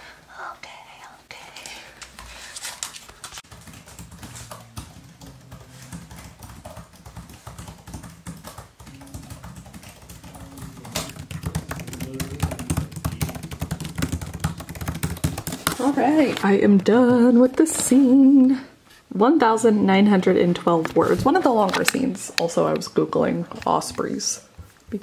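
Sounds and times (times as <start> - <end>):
fast typing on laptop keyboard: 2.8 - 16.4.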